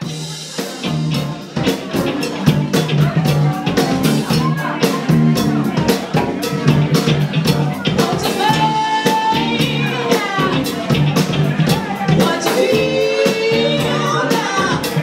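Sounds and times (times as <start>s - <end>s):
drum kit beat: 0.0s - 15.0s
live party band: 0.0s - 15.0s
woman and man singing: 8.0s - 10.8s, 12.0s - 15.0s.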